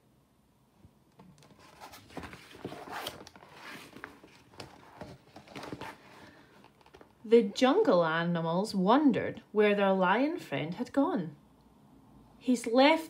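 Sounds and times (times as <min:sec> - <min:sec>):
paper page rustling: 0:01.4 - 0:07.1.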